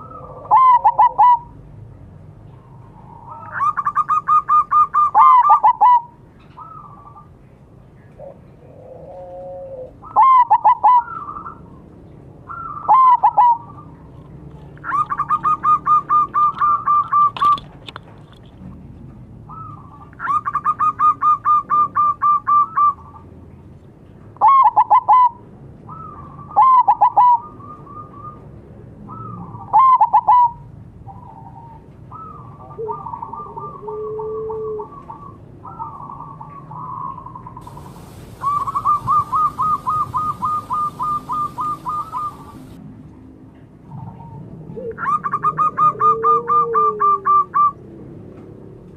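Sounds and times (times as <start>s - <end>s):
doves cooing: 0.0s - 1.5s, 8.2s - 11.6s, 31.4s - 42.8s, 44.0s - 47.7s.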